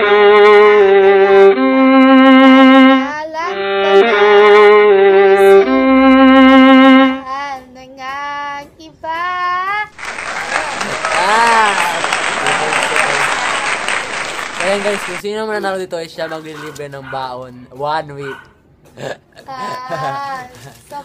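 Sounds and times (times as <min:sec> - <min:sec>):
bowed string song melody: 0:00.0 - 0:07.2, 0:12.4 - 0:15.2
noisy recording: 0:09.8 - 0:21.0.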